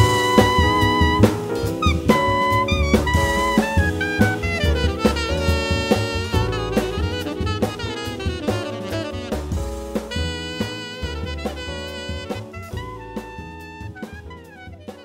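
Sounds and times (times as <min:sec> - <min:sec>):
double bass: 0:00.0 - 0:15.0
drum kit: 0:00.0 - 0:15.0
electric piano: 0:00.0 - 0:15.0
tenor saxophone: 0:00.0 - 0:15.0.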